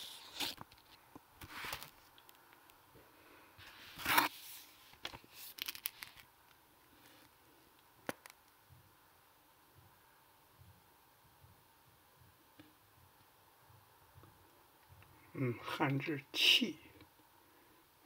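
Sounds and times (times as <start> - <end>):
hand rustling paper: 3.7 - 6.3.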